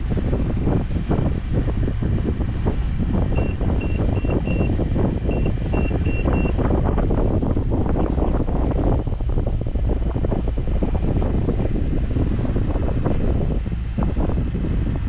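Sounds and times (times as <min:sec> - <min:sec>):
wind buffeting microphone: 0:00.0 - 0:15.0
short electronic beeps: 0:03.4 - 0:04.7, 0:05.3 - 0:06.6.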